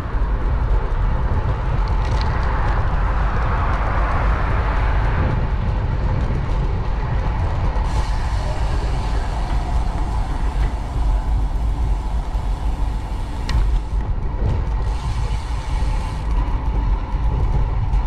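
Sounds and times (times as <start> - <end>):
city traffic rumble: 0.0 - 18.0
wind: 0.0 - 18.0
road hiss: 7.8 - 14.0, 14.8 - 16.4.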